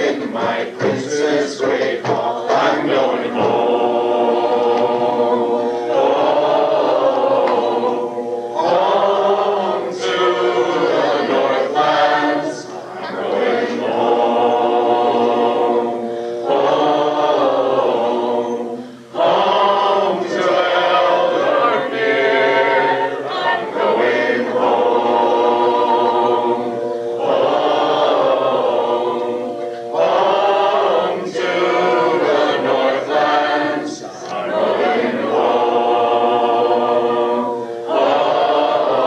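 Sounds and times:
choir singing a cappella: 0.0s - 39.0s.

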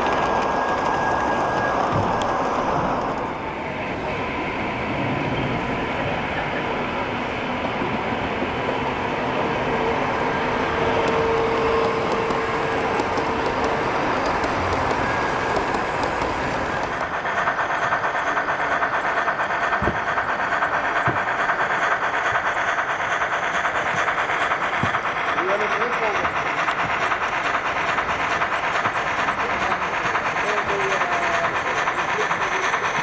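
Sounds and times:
model train whine: 0.0s - 33.0s
rhythmic clatter of model locomotive: 0.0s - 33.0s
model train wheels rolling: 9.5s - 33.0s.

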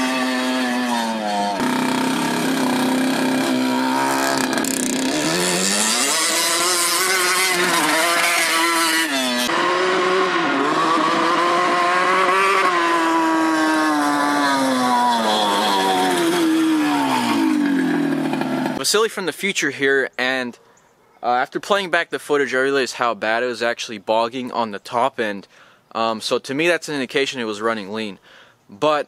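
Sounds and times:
two-stroke engine revving: 0.0s - 18.8s.

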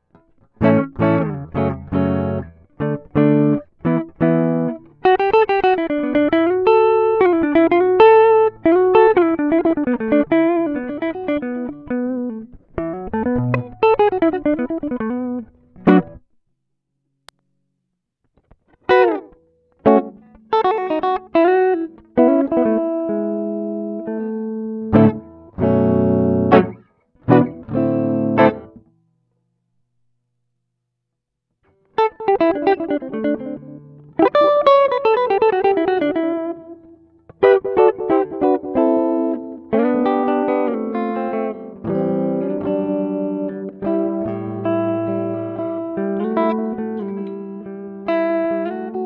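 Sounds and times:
clean electric guitar: 0.0s - 16.3s, 18.3s - 29.0s, 31.6s - 49.0s.

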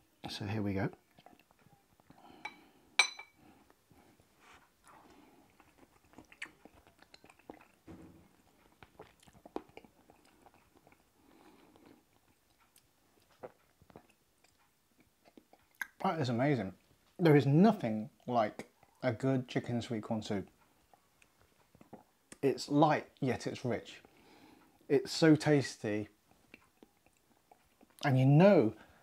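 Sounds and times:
ceramic spoon clinking on bowl: 2.4s - 3.4s
mouth sipping and chewing: 4.8s - 16.0s, 26.4s - 28.0s.

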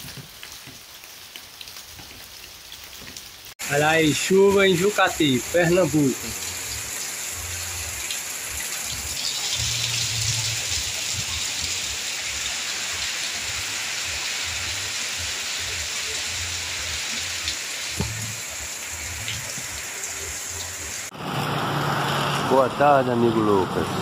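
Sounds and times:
heavy rain pouring: 0.0s - 24.0s.

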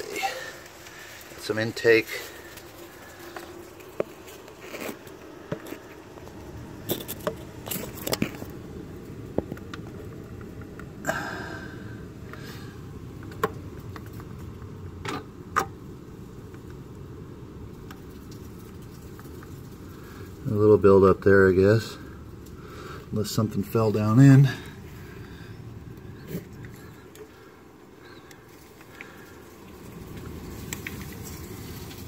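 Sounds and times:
faint steady background noise: 0.0s - 32.0s
rustling scrape: 2.0s - 6.2s, 6.8s - 8.6s.

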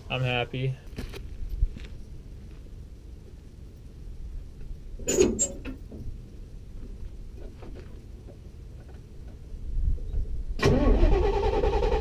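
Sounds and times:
engine cranking and starting: 10.6s - 12.0s.

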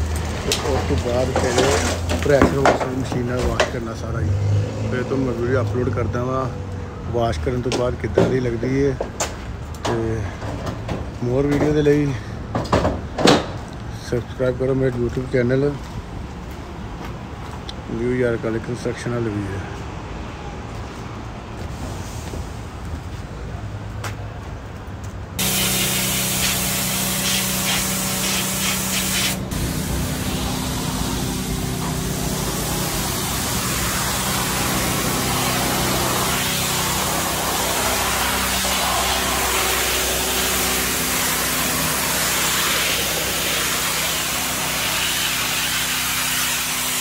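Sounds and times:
pressure washer water jet hissing: 25.4s - 47.0s.

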